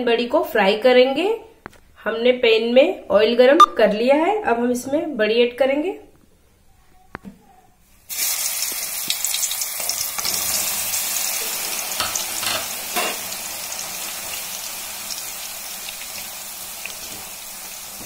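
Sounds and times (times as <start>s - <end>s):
food sizzling in hot oil: 8.0s - 18.0s.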